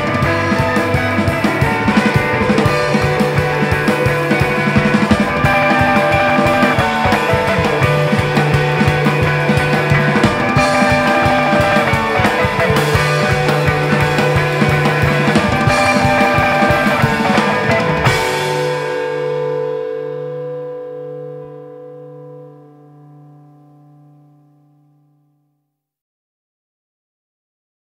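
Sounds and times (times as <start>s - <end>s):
drum kit beating: 0.0s - 19.8s
sustained pulsing notes: 0.0s - 22.9s
rock instrumental: 0.0s - 24.6s.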